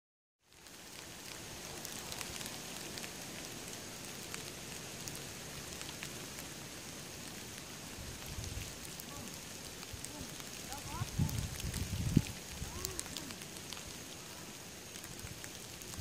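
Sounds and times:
light rain pattering: 0.4 - 16.0.

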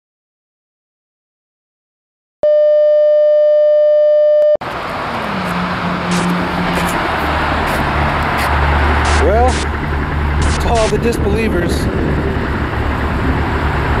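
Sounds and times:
test tone: 2.4 - 4.6
car road noise: 4.6 - 14.0
low hum: 5.2 - 14.0.

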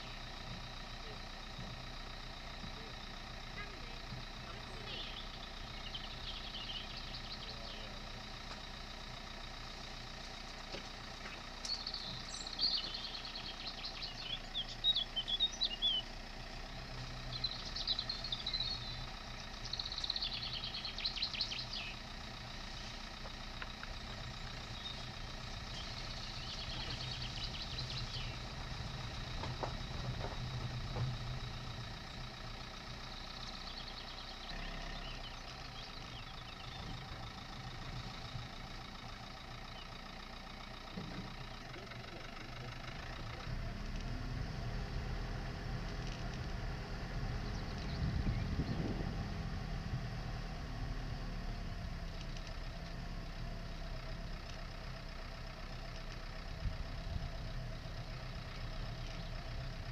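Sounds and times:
birds chirping: 0.0 - 59.9
diesel engine running: 0.0 - 59.9.

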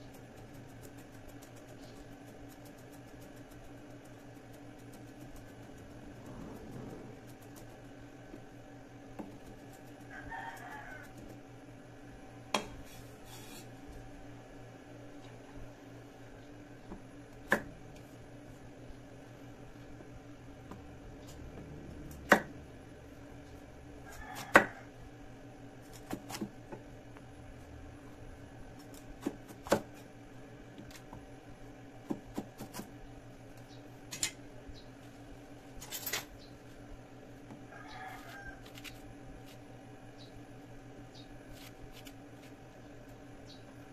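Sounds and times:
steady low hum: 0.0 - 43.9
rooster crowing faintly: 9.8 - 11.4, 24.0 - 25.1, 37.6 - 39.0
soft scraping of seeds: 12.8 - 13.8.

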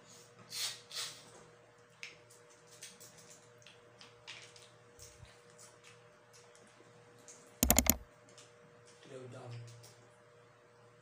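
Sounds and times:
faint clicks: 7.6 - 8.0.

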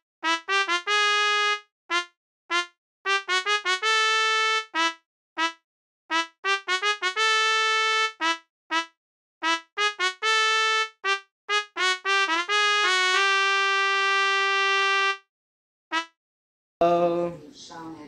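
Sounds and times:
brass melody: 0.0 - 15.3, 15.9 - 16.2.

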